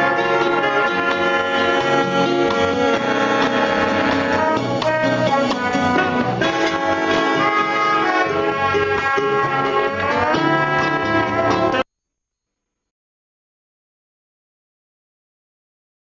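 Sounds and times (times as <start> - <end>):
latin dance orchestra: 0.0 - 11.8.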